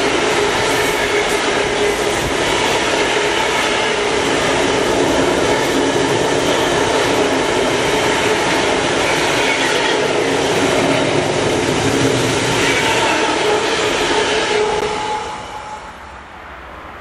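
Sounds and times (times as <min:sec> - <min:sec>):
freight train passing: 0:00.0 - 0:17.0.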